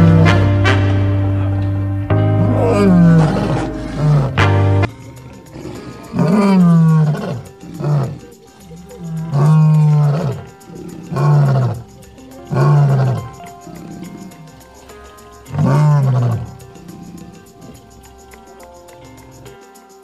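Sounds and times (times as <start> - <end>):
lion roaring: 2.3 - 14.6, 15.4 - 17.8.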